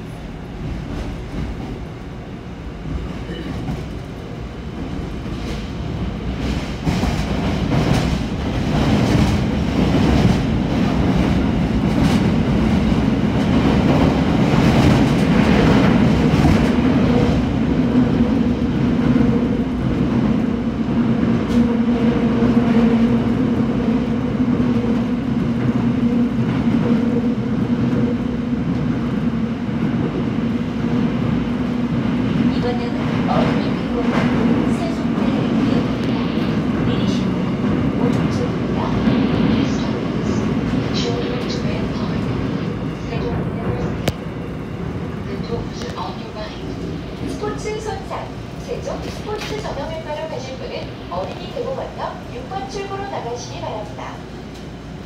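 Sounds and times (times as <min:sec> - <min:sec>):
subway wheels rolling and clattering: 0:00.0 - 0:55.0.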